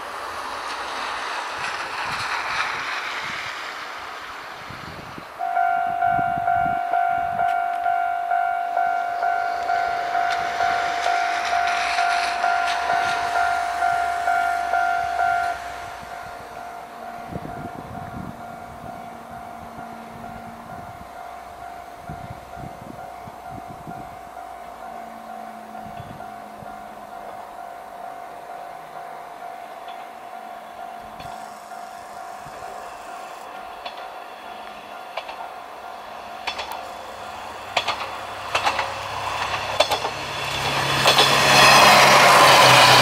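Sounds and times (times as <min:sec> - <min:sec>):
rushing noise: 0:00.0 - 0:43.0
level crossing bell ringing: 0:05.4 - 0:15.6.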